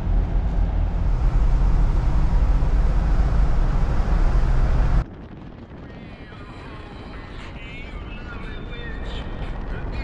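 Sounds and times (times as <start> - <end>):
car engine and road noise: 0.0 - 5.8.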